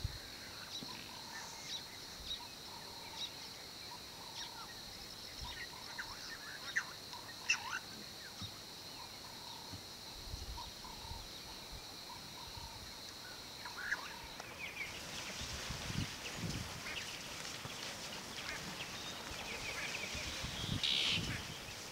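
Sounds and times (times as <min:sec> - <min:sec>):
hissy background: 0:00.0 - 0:21.9
bird calls and chirps: 0:00.5 - 0:09.8, 0:13.6 - 0:21.9.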